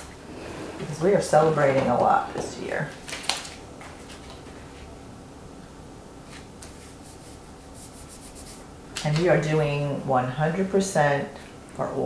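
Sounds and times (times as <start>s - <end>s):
paper rustling and rubbing: 6.2s - 8.7s
soft scratchy strokes: 6.7s - 8.7s.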